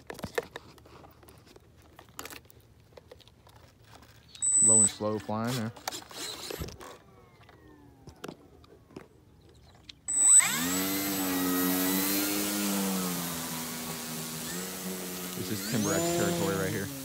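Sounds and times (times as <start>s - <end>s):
model plane motor whining: 4.4s - 8.5s, 10.1s - 17.0s.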